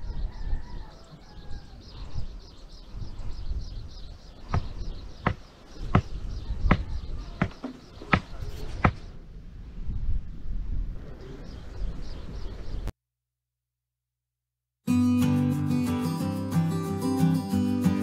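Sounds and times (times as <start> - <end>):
low rumble of wind: 0.0 - 12.9
sharp knocks: 7.4 - 9.0.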